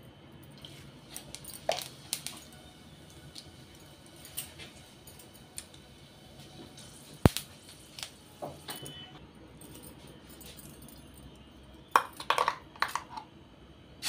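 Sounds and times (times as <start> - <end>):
spices crackling in hot oil: 0.2 - 8.4.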